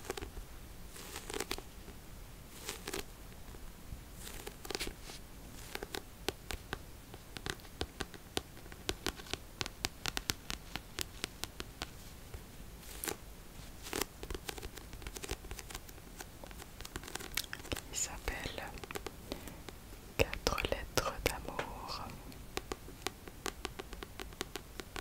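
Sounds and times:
fingernails tapping on book cover: 5.6s - 12.0s, 22.4s - 25.0s.

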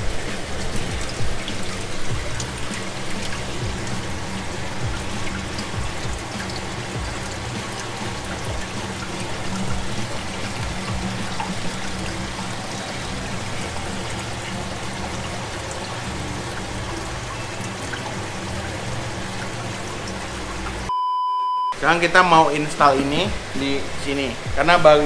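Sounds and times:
filter pump running: 0.0s - 20.9s
water pouring and trickling: 0.0s - 20.9s, 22.0s - 25.0s.

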